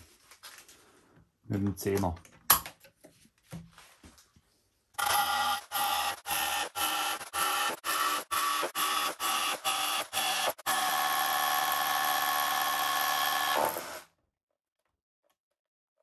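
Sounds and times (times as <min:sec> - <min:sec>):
rotary hammer drilling into concrete: 0:05.0 - 0:14.1.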